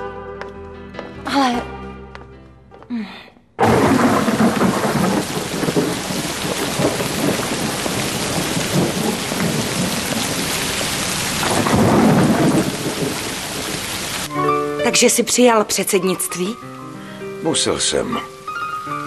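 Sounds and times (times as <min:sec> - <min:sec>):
thunder rumbling: 0:03.6 - 0:14.3
heavy rain pouring: 0:03.6 - 0:16.5.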